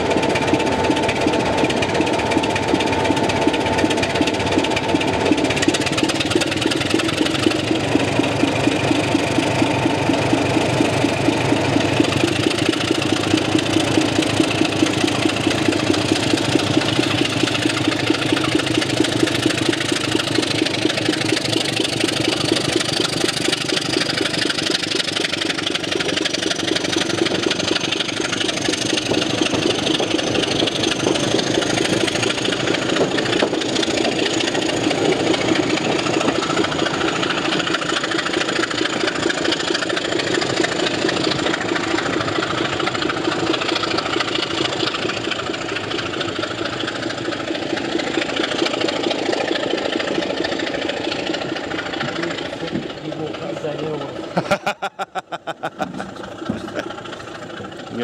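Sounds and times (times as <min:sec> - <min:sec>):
diesel locomotive engine working hard: 0:00.0 - 0:58.0.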